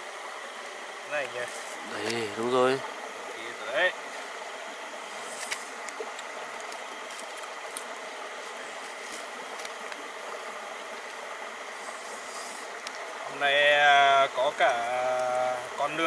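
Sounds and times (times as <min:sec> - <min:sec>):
stream water rushing: 0:00.0 - 0:16.0
wood fire crackling: 0:05.0 - 0:15.9.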